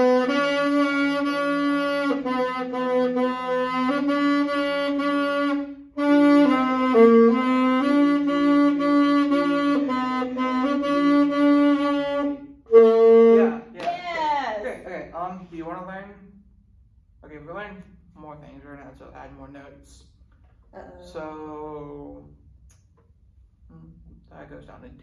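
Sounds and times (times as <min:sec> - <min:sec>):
saxophone notes: 0:00.0 - 0:13.8.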